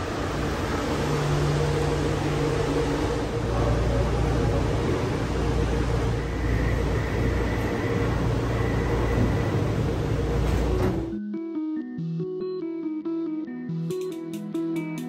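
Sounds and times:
train ventilation hum and hiss: 0:00.0 - 0:11.1.

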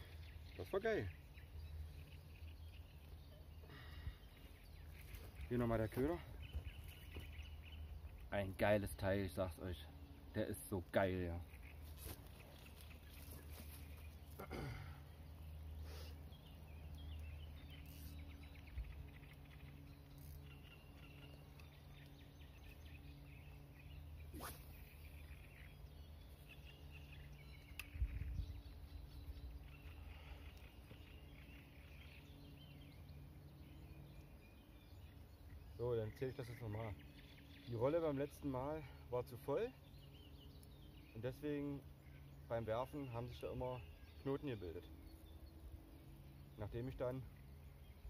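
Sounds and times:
faint bird calls: 0:00.0 - 0:08.4, 0:11.4 - 0:48.0
steady low rumble: 0:00.0 - 0:38.2.

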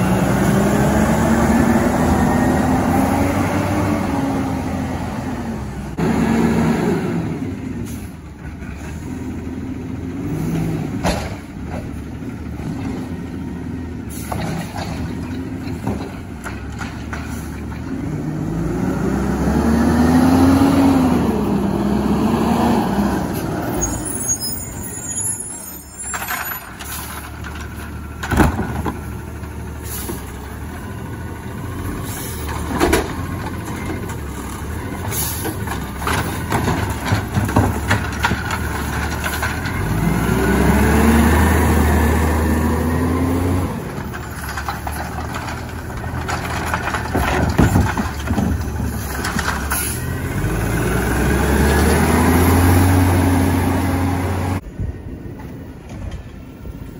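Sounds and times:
cart knocking against truck: 0:44.1 - 0:49.7.

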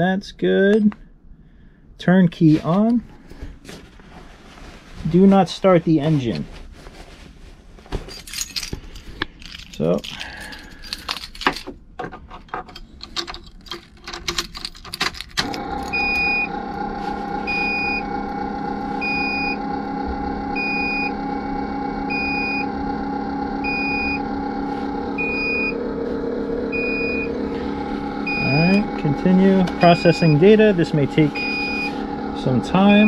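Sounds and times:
steady electrical hum: 0:00.0 - 0:33.0
ignition keys jangling and clicking: 0:08.0 - 0:16.4
dashboard warning chime beeping: 0:15.9 - 0:16.6, 0:17.4 - 0:18.1, 0:19.0 - 0:19.6, 0:20.6 - 0:21.2, 0:22.1 - 0:22.7, 0:23.6 - 0:24.3, 0:25.1 - 0:25.8, 0:26.7 - 0:33.0.

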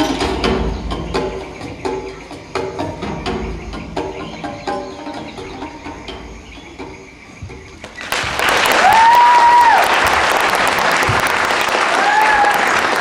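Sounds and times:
audience applause: 0:08.0 - 0:13.0.

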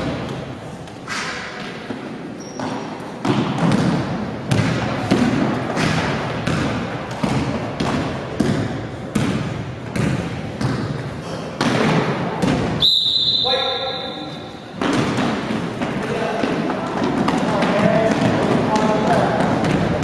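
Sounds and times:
basketball bouncing on wooden floor: 0:02.4 - 0:12.8, 0:14.8 - 0:20.0.

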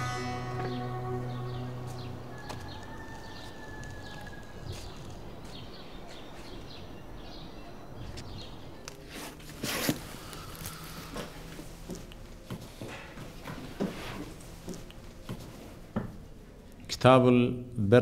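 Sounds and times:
small birds chirping: 0:00.4 - 0:09.1
scuffing noise: 0:01.8 - 0:06.8, 0:08.0 - 0:16.2.

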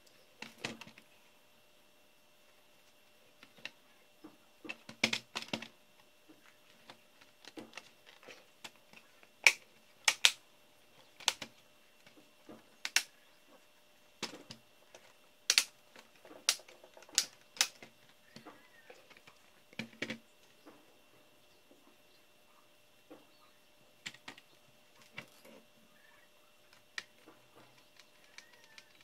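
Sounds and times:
clicks and knocks of laptop parts: 0:00.4 - 0:01.0, 0:03.4 - 0:05.7, 0:06.3 - 0:10.4, 0:11.0 - 0:13.1, 0:14.2 - 0:20.8, 0:24.0 - 0:25.4.

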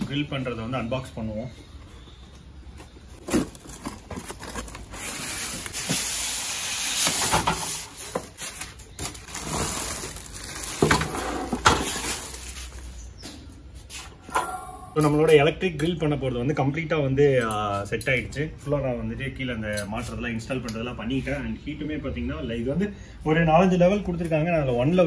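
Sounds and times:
cardboard and plastic rustling: 0:01.8 - 0:13.2.

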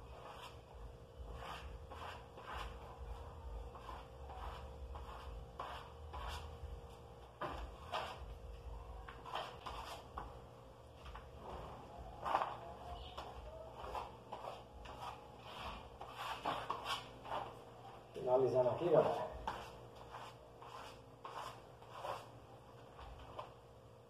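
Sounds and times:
spatula scraping plaster on wall: 0:00.1 - 0:06.7, 0:09.1 - 0:10.3, 0:13.8 - 0:17.5, 0:19.0 - 0:22.4.

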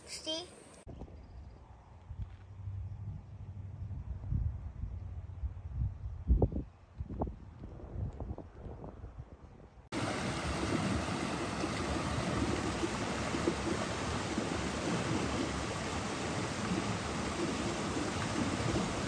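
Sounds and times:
heavy rain pouring: 0:10.0 - 0:19.0.

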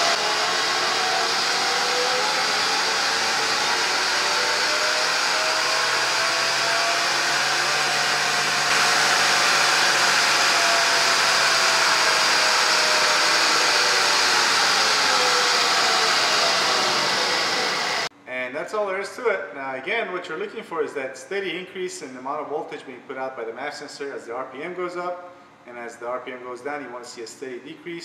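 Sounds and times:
engine revving: 0:00.0 - 0:18.1
steady rushing noise: 0:00.0 - 0:18.1.

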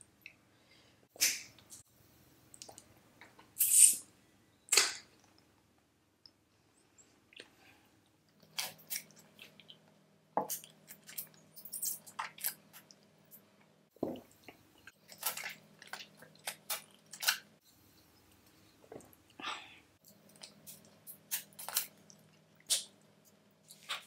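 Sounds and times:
wet mouth sounds sucking candy: 0:03.6 - 0:04.0.

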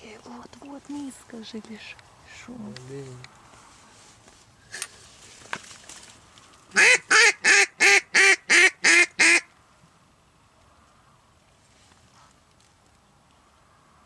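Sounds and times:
duck call quacks: 0:06.8 - 0:09.5.

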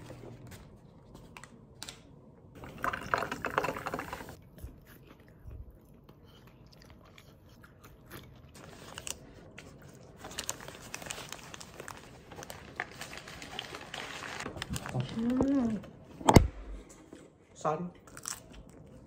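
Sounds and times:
chewing fries: 0:03.1 - 0:15.7, 0:18.0 - 0:19.0
paper wrapper crinkling: 0:08.6 - 0:15.8.

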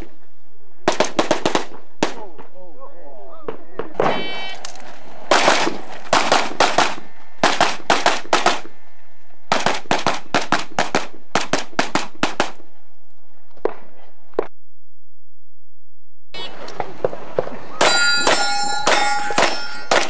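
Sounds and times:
pistol shots: 0:00.9 - 0:02.5, 0:05.3 - 0:08.7, 0:09.5 - 0:12.6.

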